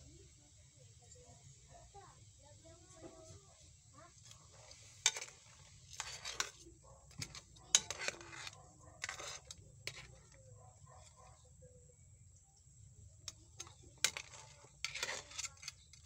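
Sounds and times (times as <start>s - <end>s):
spatula scraping a pan: 2.9s - 11.5s, 13.2s - 16.0s.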